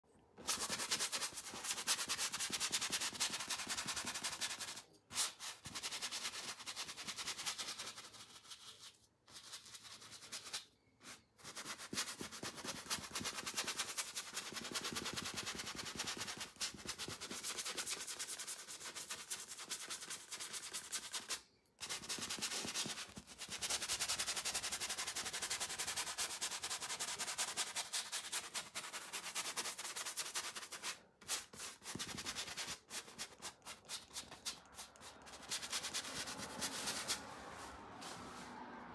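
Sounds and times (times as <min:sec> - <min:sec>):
brush scrubbing on canvas: 0:26.2 - 0:38.6.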